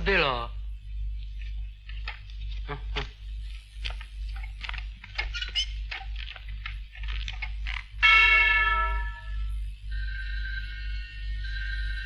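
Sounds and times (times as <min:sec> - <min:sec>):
bell strike ringing: 0:08.0 - 0:09.4.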